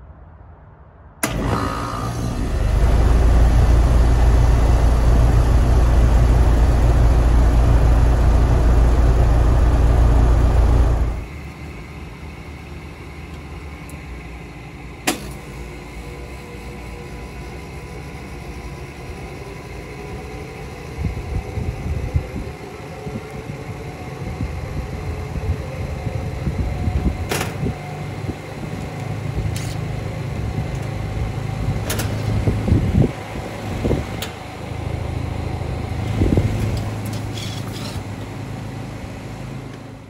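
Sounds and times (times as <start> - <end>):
low rumbles: 0.0 - 14.5, 20.6 - 37.2
compressor hum: 1.2 - 40.0
condenser fan motor spinning up: 1.2 - 40.0.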